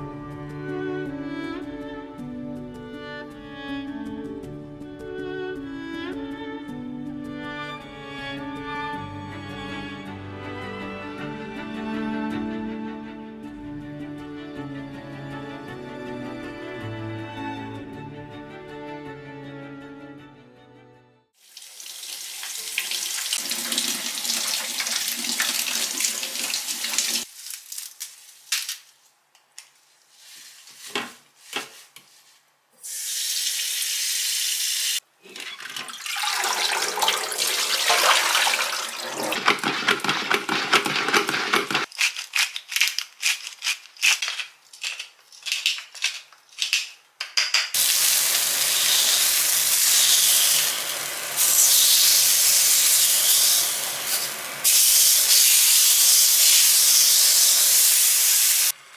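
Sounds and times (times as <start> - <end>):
water running from a tap: 21.4 - 28.1, 32.9 - 41.8, 47.8 - 58.7
steady hiss: 47.8 - 58.7.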